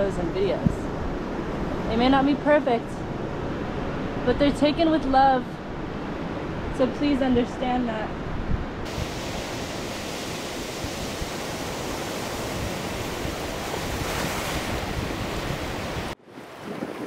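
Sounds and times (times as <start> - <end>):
wind buffeting microphone: 0.0 - 17.0
ocean surf rushing: 8.1 - 17.0.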